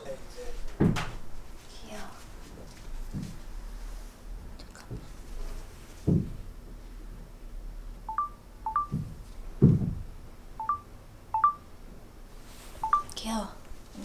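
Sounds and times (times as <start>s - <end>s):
smartphone two-note beeps: 8.1s - 9.0s, 10.6s - 11.7s, 12.8s - 13.1s.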